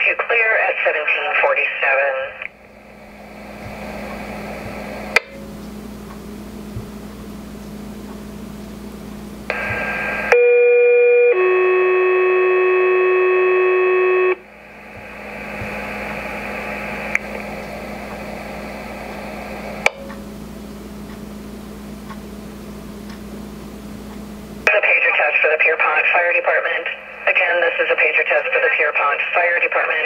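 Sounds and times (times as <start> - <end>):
radio hiss: 0.0 - 5.6, 9.5 - 10.4, 14.2 - 19.9, 24.6 - 30.0.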